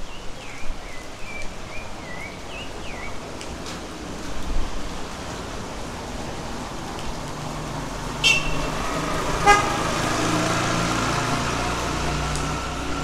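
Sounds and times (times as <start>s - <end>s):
steady rain: 0.0s - 13.0s
vehicle engine droning: 7.9s - 13.0s.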